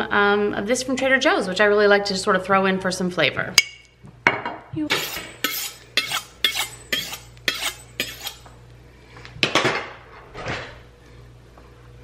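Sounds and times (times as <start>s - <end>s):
knife scraping on honing rod: 4.9s - 8.6s.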